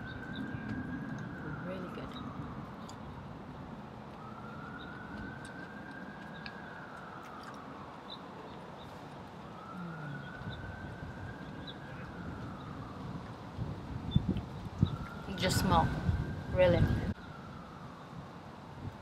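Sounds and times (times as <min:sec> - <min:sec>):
emergency vehicle siren wailing: 0:00.0 - 0:18.9
outdoor background hiss: 0:06.6 - 0:19.0.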